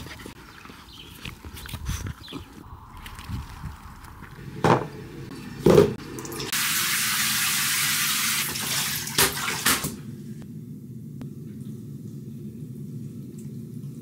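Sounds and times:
shower spraying into bathtub: 0:06.3 - 0:10.0.

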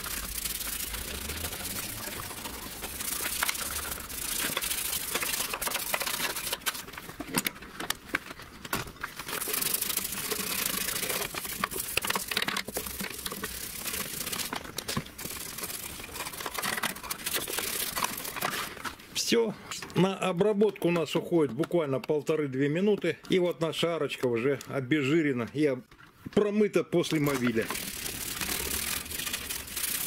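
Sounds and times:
brush scrubbing metal: 0:00.0 - 0:06.8, 0:09.2 - 0:14.6, 0:15.2 - 0:18.7, 0:27.2 - 0:30.0
plastic bottle crinkling: 0:00.0 - 0:19.0, 0:27.0 - 0:30.0.

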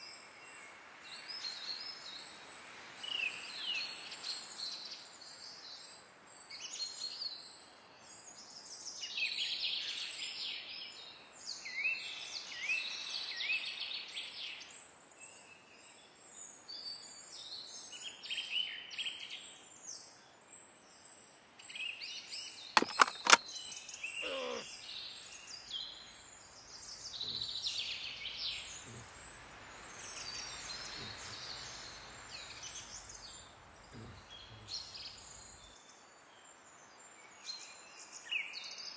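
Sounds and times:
sharp clicks: 0:22.8 - 0:23.5
soft outdoor hush: 0:22.8 - 0:37.0
birds chirping and trilling: 0:22.8 - 0:38.2.

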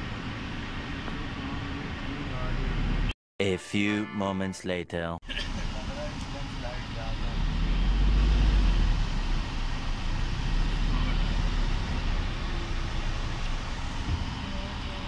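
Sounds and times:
road noise: 0:00.0 - 0:03.2, 0:05.2 - 0:15.0
van engine running: 0:05.3 - 0:15.0.

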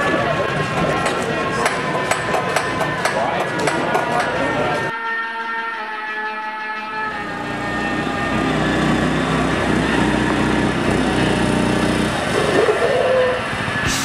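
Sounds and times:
brake squeal: 0:07.2 - 0:14.0
small engine running: 0:07.3 - 0:13.9.

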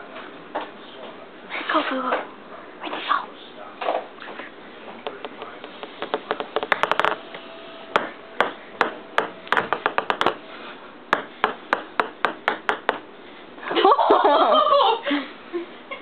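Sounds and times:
ping-pong ball bouncing on table: 0:05.1 - 0:07.2, 0:08.0 - 0:10.4, 0:11.1 - 0:13.1.

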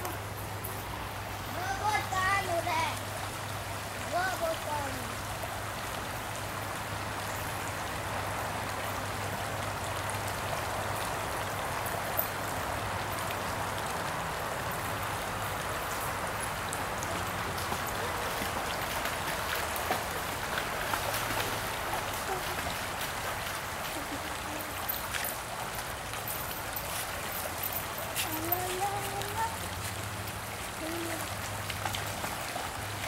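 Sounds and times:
creek water flowing over stones: 0:00.0 - 0:33.0.

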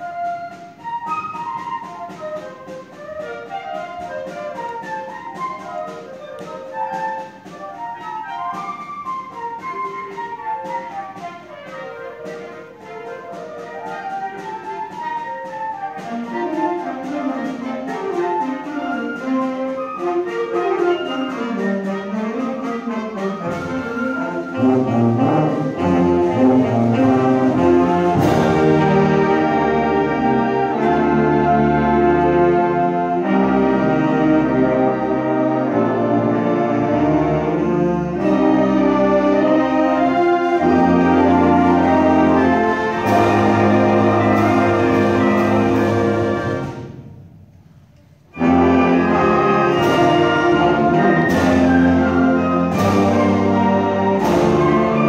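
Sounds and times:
concert band playing: 0:00.0 - 0:55.0
low brass: 0:20.0 - 0:47.2, 0:48.3 - 0:55.0.

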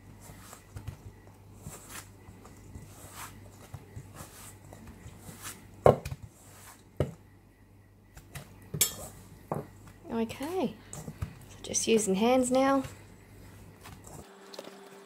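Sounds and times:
utensil scraping dough in metal bowl: 0:01.6 - 0:05.7.

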